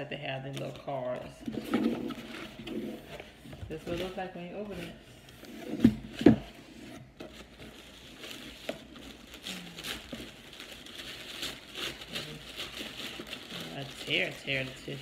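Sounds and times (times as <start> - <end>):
tissue paper crinkling: 6.7 - 15.0.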